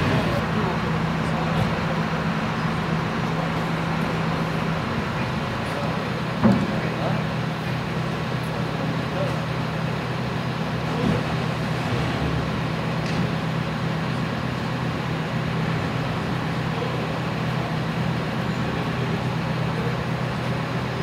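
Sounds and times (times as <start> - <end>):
traffic noise: 0.0 - 21.0.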